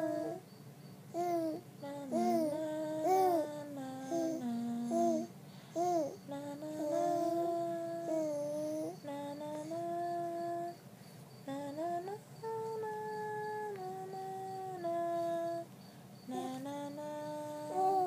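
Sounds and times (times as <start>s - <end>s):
baby cooing: 0.0s - 0.4s, 1.2s - 6.2s.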